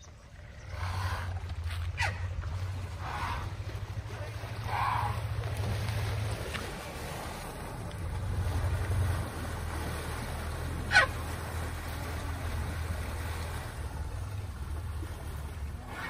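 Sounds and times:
elephant low rumble: 0:00.0 - 0:16.0
light splashing: 0:00.6 - 0:16.0.

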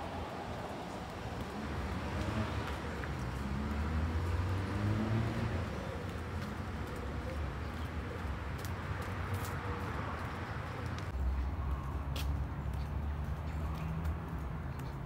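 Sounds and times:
pigeons cooing: 0:05.4 - 0:08.6.

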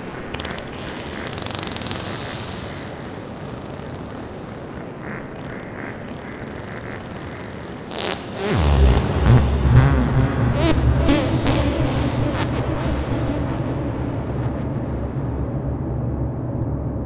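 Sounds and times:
rumbling electronic ambient wash: 0:00.0 - 0:17.0
low pitch-bending sample: 0:08.5 - 0:17.0.

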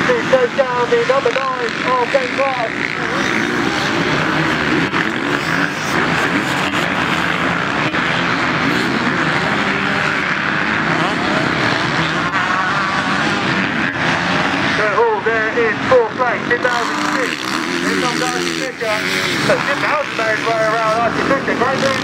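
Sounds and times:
motorcycle engines revving: 0:00.0 - 0:22.0.

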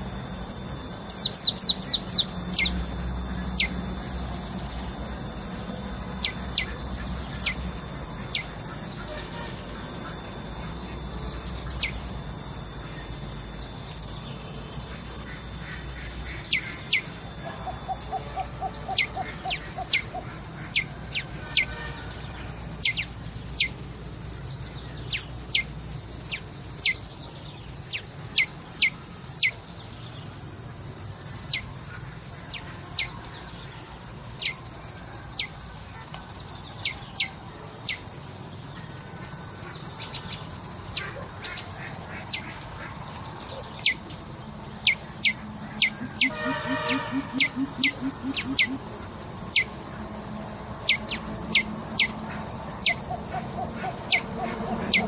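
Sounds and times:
high-pitched insect drone: 0:00.0 - 0:55.0
bird chirps: 0:01.0 - 0:04.0, 0:06.0 - 0:11.0, 0:11.6 - 0:12.2, 0:12.8 - 0:23.8, 0:40.0 - 0:49.8, 0:50.8 - 0:55.0.

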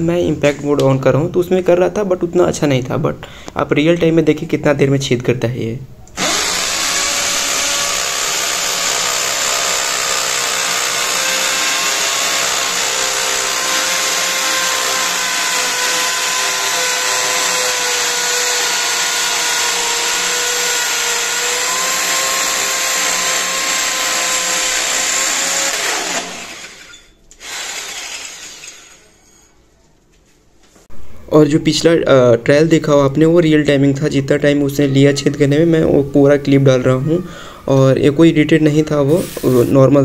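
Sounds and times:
hammer drill boring into masonry: 0:06.2 - 0:29.4.

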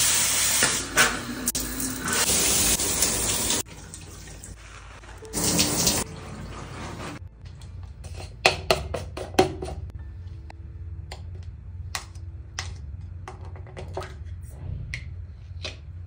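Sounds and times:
low steady hum: 0:09.8 - 0:16.0.

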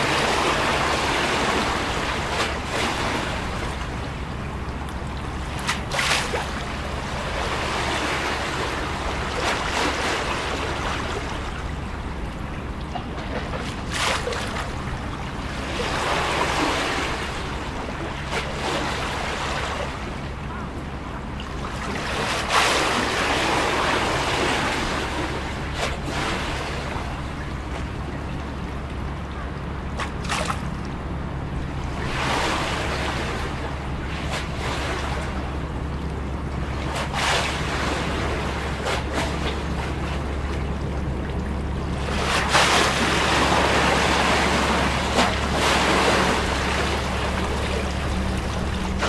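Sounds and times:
water slapping: 0:00.0 - 0:20.3, 0:29.8 - 0:31.0, 0:31.6 - 0:49.0
steady low hum: 0:00.0 - 0:49.0
waves lapping against wall: 0:00.0 - 0:49.0.

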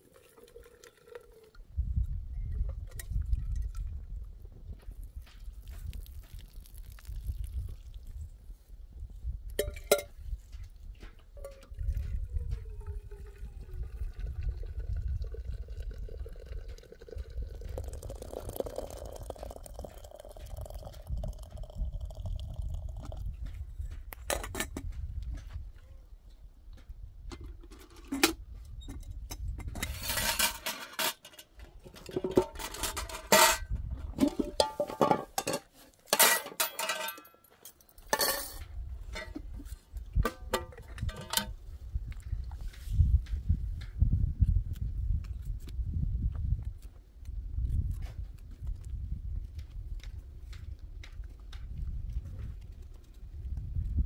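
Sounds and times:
liquid sounds: 0:00.0 - 0:01.7, 0:11.4 - 0:23.4
kitchenware clinking: 0:34.2 - 0:37.4.

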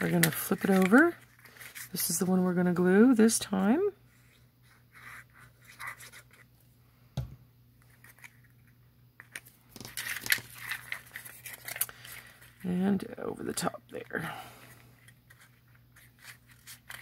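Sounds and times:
paper crinkling and rustling: 0:00.0 - 0:02.2, 0:05.0 - 0:06.5, 0:07.8 - 0:12.7, 0:14.0 - 0:17.0.

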